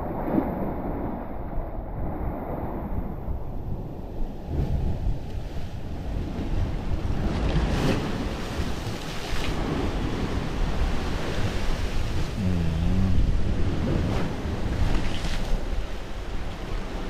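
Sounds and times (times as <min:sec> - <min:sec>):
wind buffeting microphone: 0:01.9 - 0:17.0
sea surf washing: 0:05.6 - 0:17.0.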